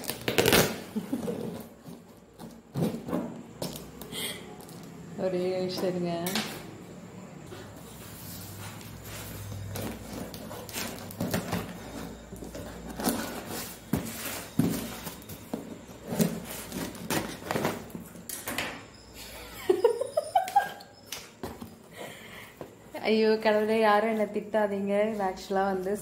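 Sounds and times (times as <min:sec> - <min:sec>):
knife slitting packing tape: 0:00.0 - 0:01.4.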